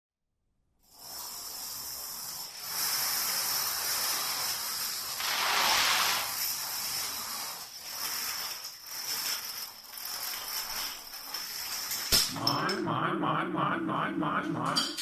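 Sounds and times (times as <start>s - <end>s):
dominoes toppling clatter: 0.9s - 12.3s.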